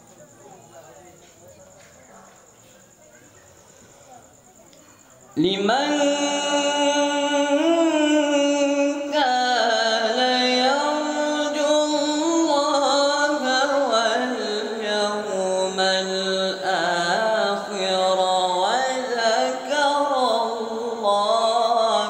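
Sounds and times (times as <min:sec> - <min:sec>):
male voice reciting melodically: 0:05.4 - 0:22.0.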